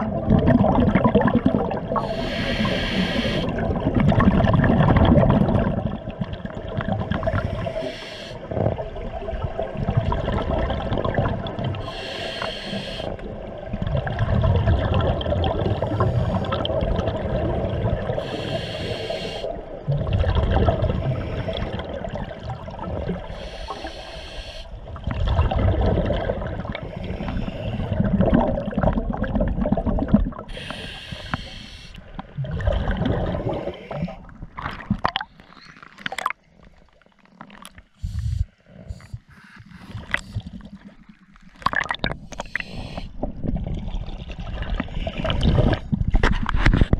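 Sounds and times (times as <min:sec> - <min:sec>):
exhaled bubbles bubbling underwater: 0:00.0 - 0:46.9
diver inhaling through regulator hiss: 0:02.0 - 0:03.6, 0:07.4 - 0:08.4, 0:11.8 - 0:13.2, 0:15.7 - 0:16.6, 0:18.2 - 0:19.6, 0:21.0 - 0:21.8, 0:23.3 - 0:24.8, 0:26.9 - 0:28.0, 0:30.5 - 0:32.0, 0:38.0 - 0:40.6, 0:42.4 - 0:43.2.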